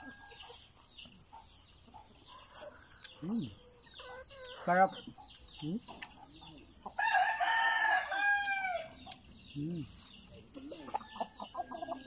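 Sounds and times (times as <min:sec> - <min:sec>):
chickens clucking: 0:00.0 - 0:12.0
rooster crowing: 0:07.0 - 0:09.0.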